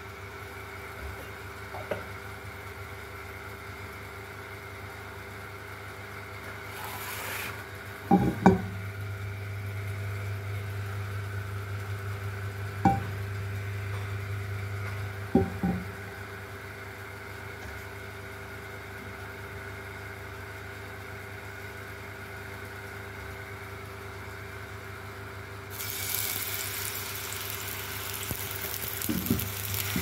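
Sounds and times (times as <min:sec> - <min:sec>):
frying pan knocking on stove: 0:08.1 - 0:08.8, 0:12.8 - 0:13.1, 0:15.3 - 0:15.9, 0:28.1 - 0:30.0
steady hum: 0:25.6 - 0:30.0.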